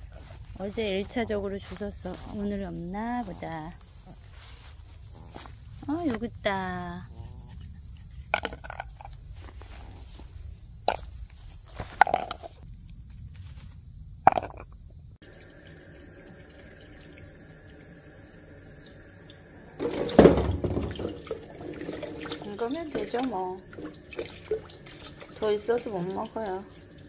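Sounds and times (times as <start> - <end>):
crickets and insects trilling: 0.0 - 27.0
water running into a sink: 15.2 - 27.0.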